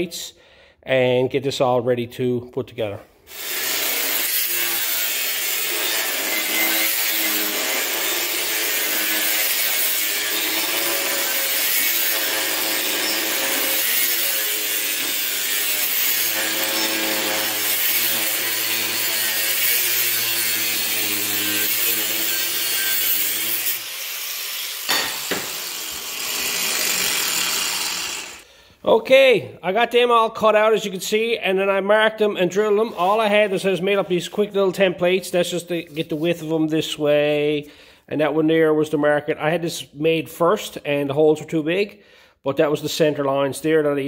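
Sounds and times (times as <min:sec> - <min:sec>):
angle grinder cutting steel: 0:03.3 - 0:28.4
knocks: 0:24.9 - 0:25.6.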